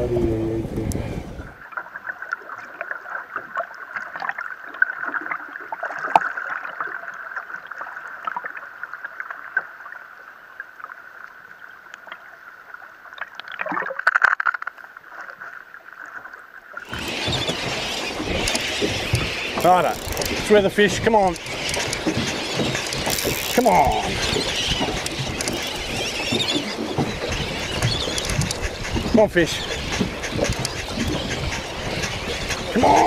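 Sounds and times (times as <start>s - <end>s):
wind and sea noise: 0.0s - 33.0s
underwater clicks and crackles: 13.1s - 33.0s
noisy underwater rush: 16.7s - 33.0s
underwater high whine: 16.8s - 33.0s.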